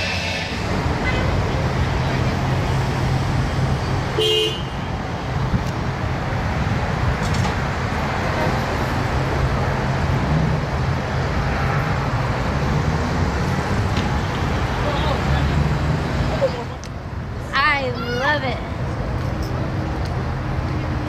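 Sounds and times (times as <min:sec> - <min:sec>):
low engine rumble and traffic: 0:00.0 - 0:21.0.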